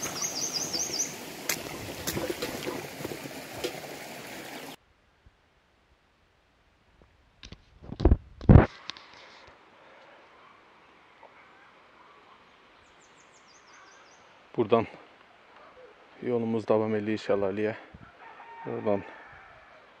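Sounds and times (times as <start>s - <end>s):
bird chirping: 0.0s - 1.2s
stream running over stones: 0.0s - 4.8s.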